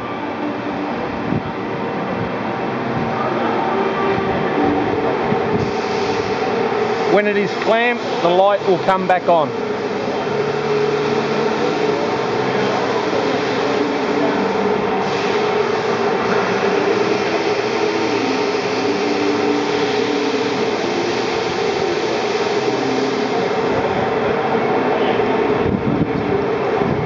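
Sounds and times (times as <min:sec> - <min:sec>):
lathe tool post mechanical hum: 0:04.9 - 0:24.8.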